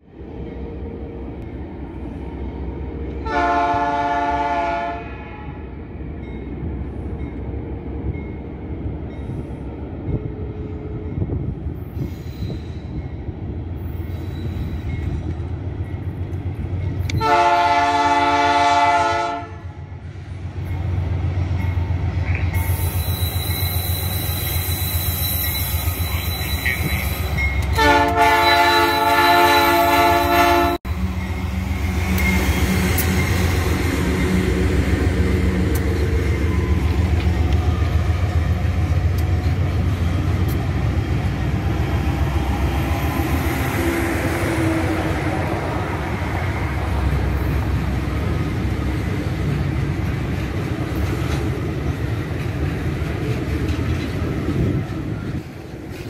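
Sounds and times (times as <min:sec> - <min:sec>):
diesel locomotive engine rumbling: 0:00.0 - 0:56.0
train horn blasts: 0:03.2 - 0:05.7, 0:17.1 - 0:19.8, 0:27.6 - 0:30.9.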